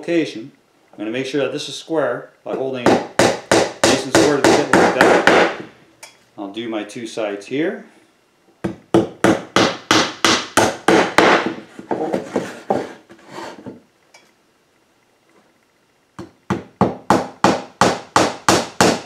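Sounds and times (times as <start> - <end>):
hammer driving nails into wood: 2.9 - 5.7, 8.7 - 11.6, 16.2 - 19.0.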